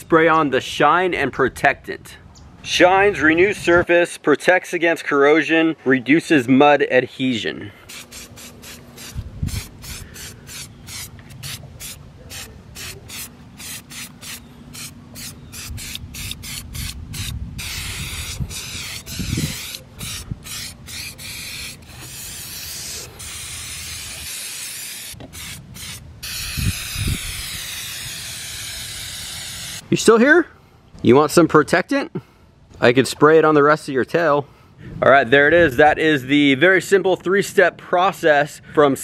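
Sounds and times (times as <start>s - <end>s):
aerosol spray hissing: 7.9s - 29.9s.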